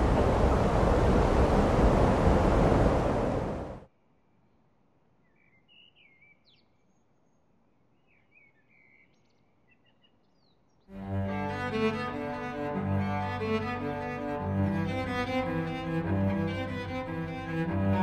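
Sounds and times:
bird chirps: 0:05.2 - 0:10.9
bowed string music with cello: 0:10.9 - 0:18.0.

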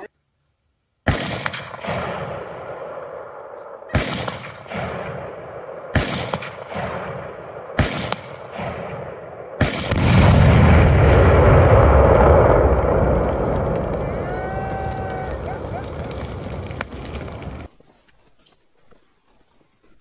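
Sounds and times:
echoing gunshots: 0:01.0 - 0:14.2
large explosion with low rumble: 0:07.8 - 0:17.7.

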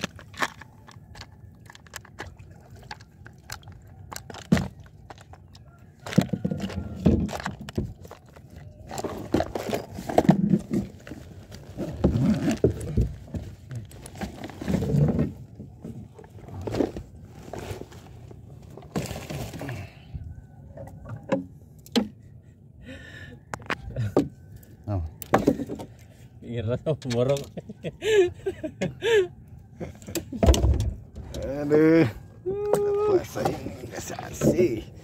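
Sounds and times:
handling noise on camera: 0:00.0 - 0:19.8.

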